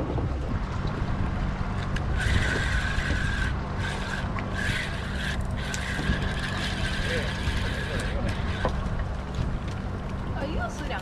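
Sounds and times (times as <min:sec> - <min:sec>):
boat engine humming: 0:00.0 - 0:11.0
fishing reel whirring: 0:02.0 - 0:08.9.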